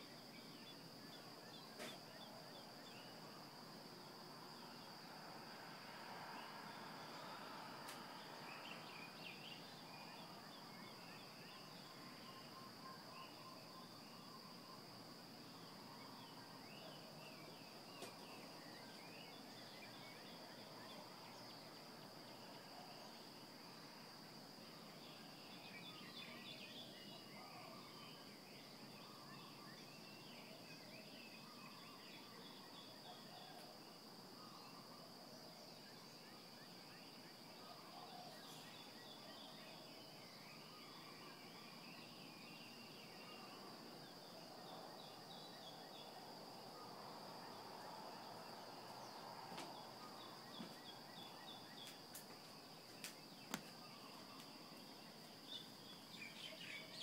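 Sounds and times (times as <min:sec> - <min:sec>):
small birds chirping: 0:06.4 - 0:23.2, 0:38.0 - 0:57.0.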